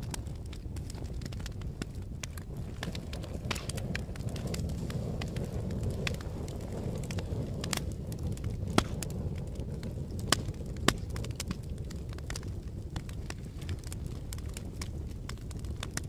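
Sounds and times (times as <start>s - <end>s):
fire crackling and popping: 0.0s - 16.0s
wood fire rumbling: 0.0s - 16.0s
loud wood snaps: 0.1s - 4.6s, 8.4s - 9.1s.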